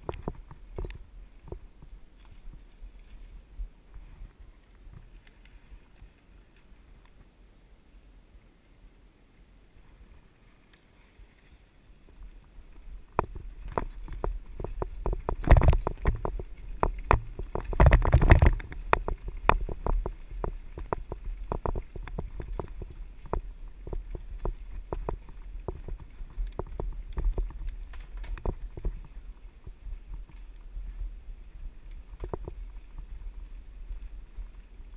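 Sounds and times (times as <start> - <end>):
bike knocking over roots and rocks: 0.0 - 3.2, 12.1 - 31.1, 31.9 - 34.9
mountain bike rattling on dirt trail: 0.0 - 6.5, 11.4 - 34.9.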